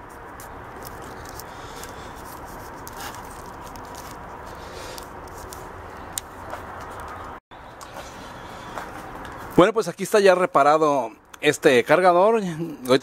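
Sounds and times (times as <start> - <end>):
hands handling wiring: 0.0 - 8.1.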